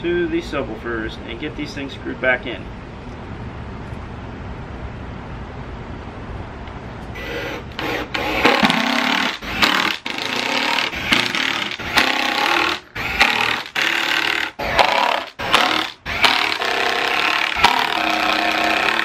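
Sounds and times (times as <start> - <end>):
cordless driver running: 7.2 - 19.0.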